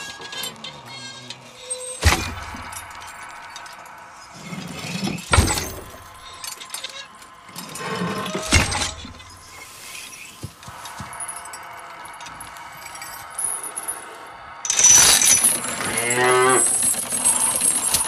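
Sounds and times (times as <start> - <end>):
brittle crashing clatter: 1.6 - 7.4.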